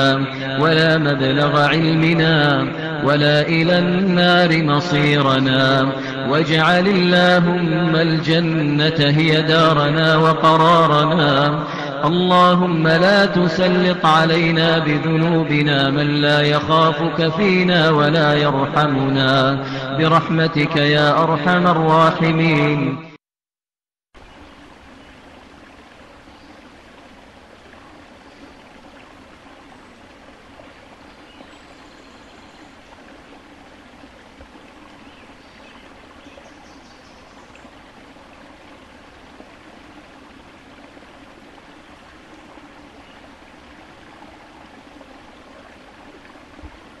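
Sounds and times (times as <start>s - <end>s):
running water rushing and splashing: 24.2s - 47.0s.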